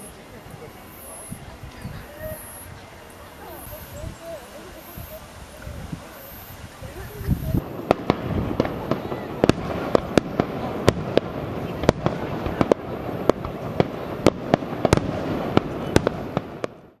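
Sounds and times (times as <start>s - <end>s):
continuous fireworks din: 0.0s - 17.0s
firework shells bursting: 4.8s - 17.0s.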